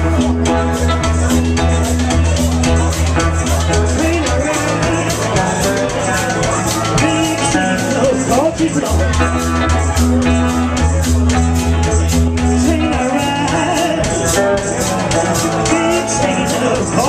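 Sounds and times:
bass guitar low notes: 0:00.0 - 0:17.0
drum kit cymbal beat: 0:00.0 - 0:17.0
guitars: 0:00.0 - 0:17.0
man singing: 0:03.1 - 0:09.6, 0:12.2 - 0:17.0.

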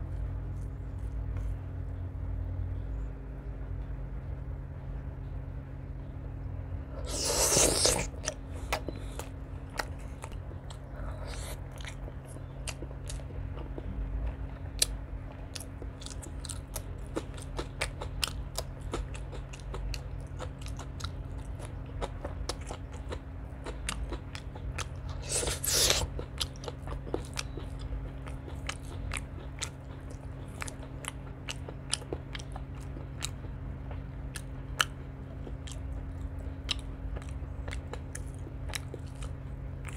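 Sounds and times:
loud crunches: 0:07.0 - 0:09.2, 0:25.1 - 0:26.2
wet chewing with clicks: 0:07.0 - 0:39.9.

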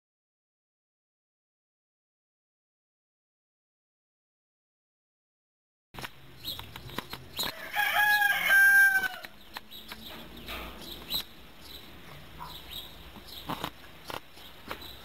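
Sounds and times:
rooster crowing: 0:07.5 - 0:09.3.

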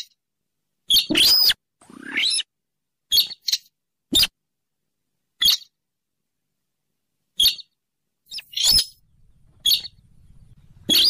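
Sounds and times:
rail bird calling: 0:08.3 - 0:11.0.

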